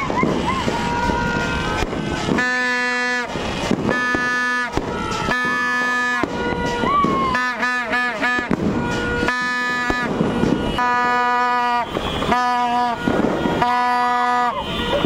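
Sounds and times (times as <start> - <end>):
fireworks crackling and popping: 0.0 - 15.0
horn honking long blasts: 0.0 - 15.0.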